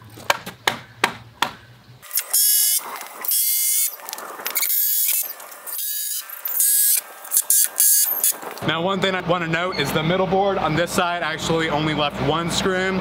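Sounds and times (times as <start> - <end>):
cordless drill driving screws: 2.0 - 8.4.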